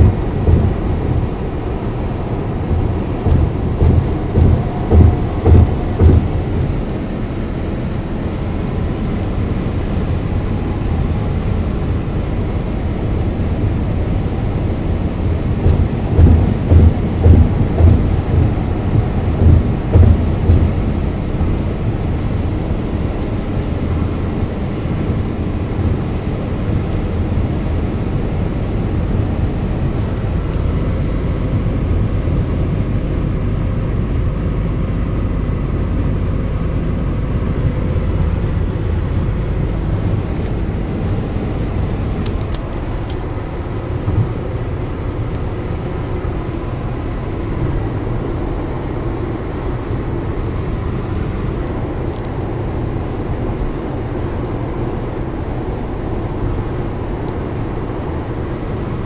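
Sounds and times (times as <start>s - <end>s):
car road noise from cabin: 0.0s - 59.0s.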